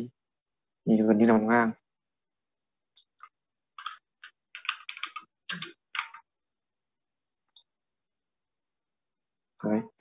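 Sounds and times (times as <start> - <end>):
computer keyboard typing: 3.0 - 6.3.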